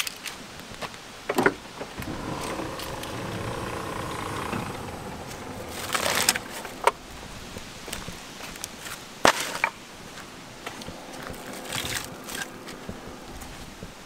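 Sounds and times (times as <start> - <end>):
rustling clatter: 1.5 - 8.2
vehicle engine running: 1.6 - 8.5, 10.4 - 14.0.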